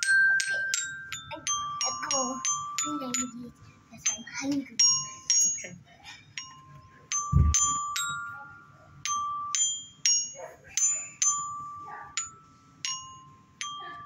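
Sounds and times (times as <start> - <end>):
toy glockenspiel notes: 0.0 - 14.0
short dull thump: 7.3 - 7.7.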